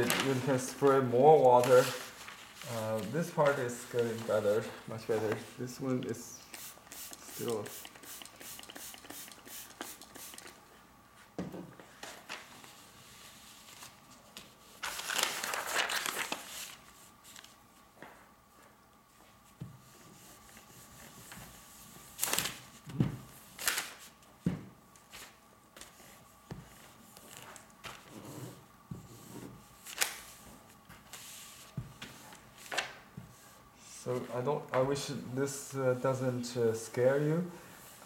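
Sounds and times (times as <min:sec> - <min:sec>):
paper rustling and crinkling: 0:00.0 - 0:06.0, 0:11.9 - 0:12.8, 0:13.5 - 0:17.6, 0:22.2 - 0:22.8, 0:23.6 - 0:24.2, 0:25.0 - 0:28.1, 0:29.8 - 0:33.0.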